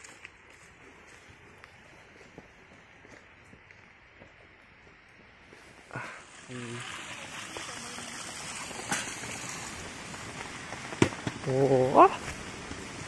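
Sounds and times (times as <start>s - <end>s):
steady rain hissing: 0.0s - 13.0s
person's short rising vocal sound: 5.9s - 7.0s.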